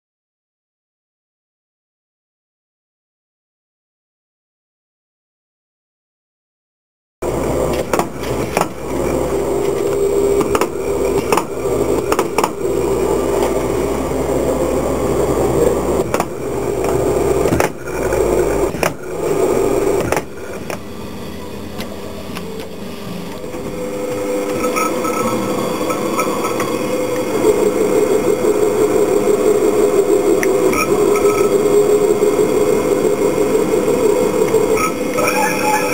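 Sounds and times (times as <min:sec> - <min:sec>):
machine humming: 0:07.2 - 0:35.9.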